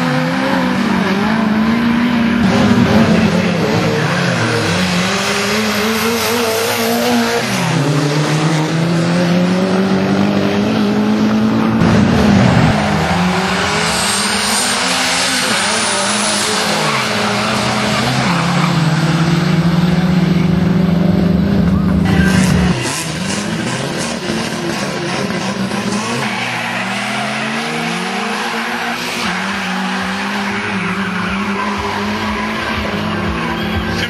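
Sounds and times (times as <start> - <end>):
drag racing cars accelerating: 0.0 - 34.0
tyre squeal: 25.8 - 34.0.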